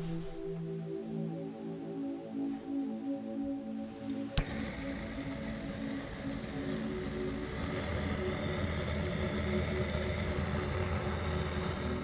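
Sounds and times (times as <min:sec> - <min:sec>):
gas torch roaring: 0:04.0 - 0:12.0.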